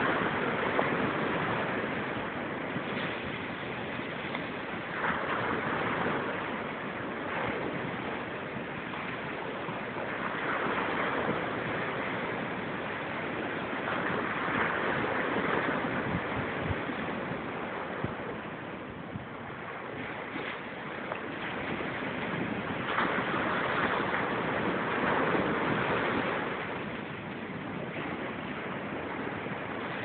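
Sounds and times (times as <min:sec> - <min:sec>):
ocean waves breaking: 0:00.0 - 0:30.0.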